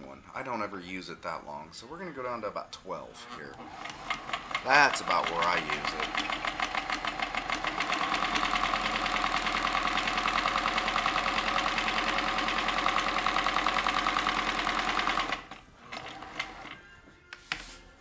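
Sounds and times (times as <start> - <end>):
sewing machine running: 3.6 - 16.8.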